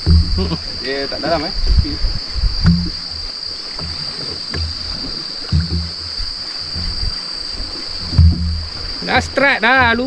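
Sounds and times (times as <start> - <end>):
high-pitched insect drone: 0.0 - 10.0
low thuds: 0.0 - 10.0
water noise: 0.0 - 10.0.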